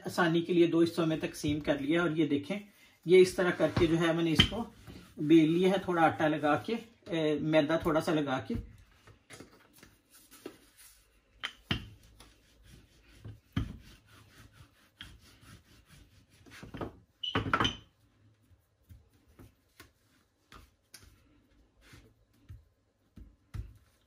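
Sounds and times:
rolling pin rubbing on pastry: 11.9s - 17.1s, 18.3s - 22.7s.

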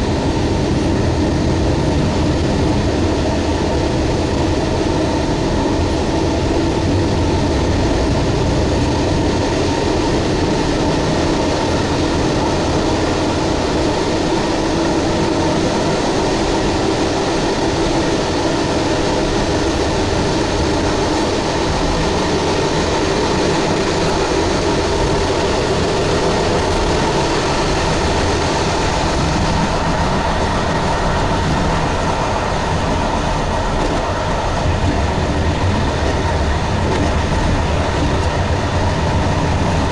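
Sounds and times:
locomotive running noise: 0.0s - 39.9s
train wheels rumbling on rail: 0.0s - 39.9s.

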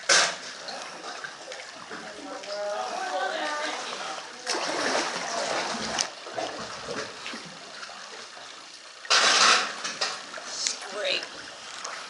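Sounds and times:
water splashing around kayak: 3.6s - 12.0s.

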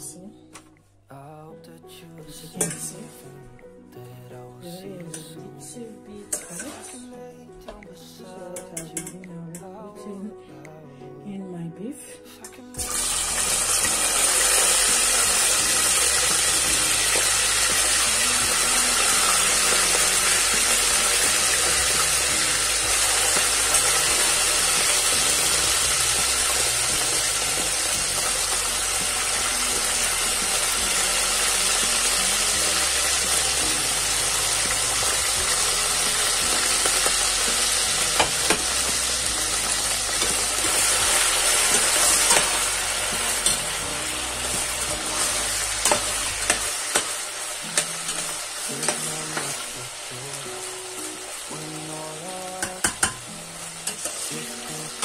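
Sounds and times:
meat sizzling in hot oil: 12.8s - 55.0s
spoon knocking against pot: 52.6s - 53.2s.

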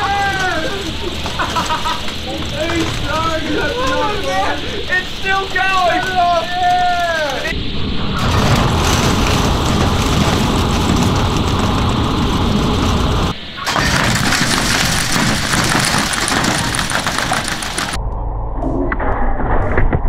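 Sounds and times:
steel and plastic pieces clattering: 0.0s - 4.6s, 8.2s - 18.0s.

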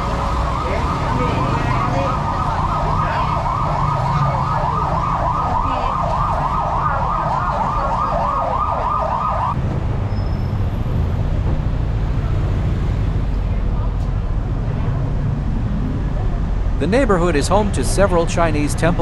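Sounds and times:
emergency siren yelping: 0.0s - 9.6s
street traffic rumble: 0.0s - 19.0s.

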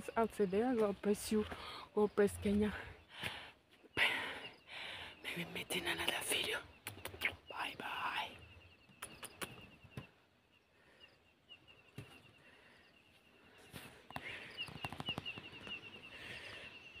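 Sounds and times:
scattered clicks: 14.6s - 15.7s.

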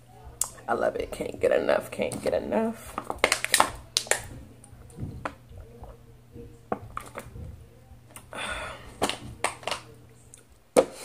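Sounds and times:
breath out: 8.2s - 9.0s.

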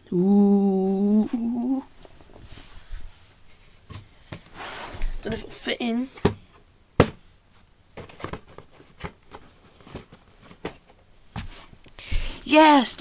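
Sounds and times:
soft taps and rustles: 2.0s - 5.4s, 6.2s - 12.4s
sharp knock on box: 7.0s - 7.2s.

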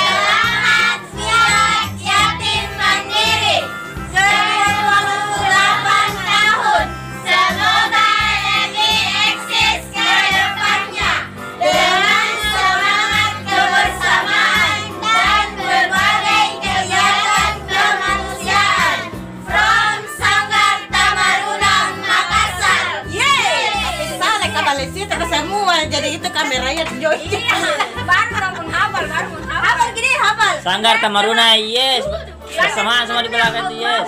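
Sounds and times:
women and children singing: 0.0s - 24.4s
backing music with bass beat: 0.0s - 30.1s.

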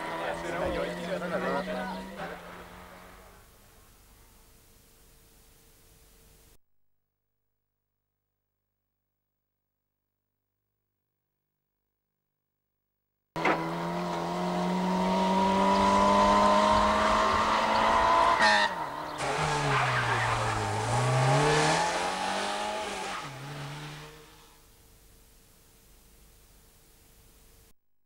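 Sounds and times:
rally car engine revving: 0.0s - 3.4s, 13.4s - 24.6s.

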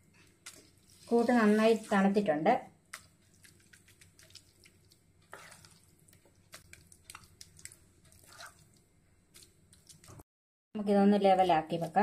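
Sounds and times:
sticky pudding squelching: 2.9s - 10.2s
spatula scraping a pan: 5.2s - 5.9s, 8.0s - 8.6s.

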